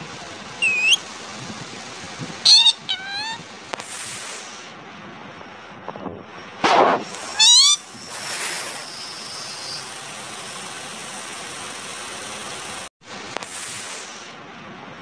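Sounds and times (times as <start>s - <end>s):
steady background hiss: 0.0s - 4.9s
parrot wavering call: 0.6s - 1.0s, 2.4s - 3.4s, 7.3s - 8.0s.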